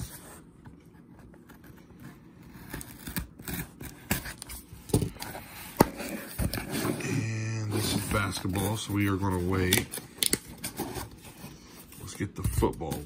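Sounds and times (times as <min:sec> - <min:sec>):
cardboard box scraping and rustling: 0:05.4 - 0:09.8.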